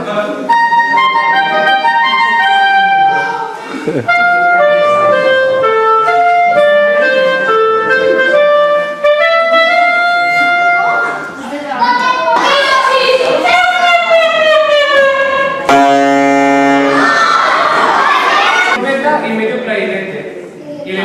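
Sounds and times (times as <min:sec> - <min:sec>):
solo clarinet melody: 0:04.0 - 0:11.0, 0:14.2 - 0:17.4.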